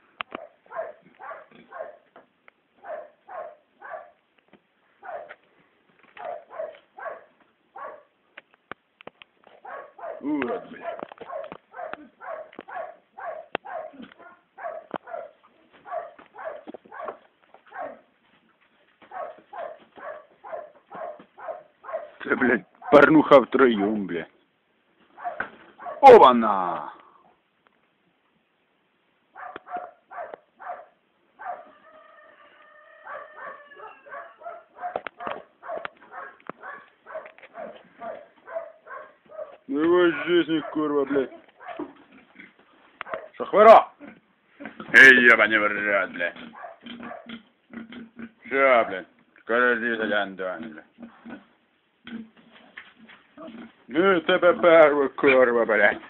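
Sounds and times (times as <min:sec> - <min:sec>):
dog barking: 0:00.3 - 0:02.1, 0:02.8 - 0:04.2, 0:05.0 - 0:05.4, 0:06.2 - 0:08.2, 0:09.6 - 0:18.1, 0:19.1 - 0:22.2, 0:22.8 - 0:23.1, 0:25.2 - 0:26.2, 0:29.4 - 0:32.0, 0:33.0 - 0:39.7, 0:40.4 - 0:42.0, 0:43.0 - 0:43.4, 0:46.5 - 0:47.4
whimpering animal cries: 0:31.4 - 0:34.6.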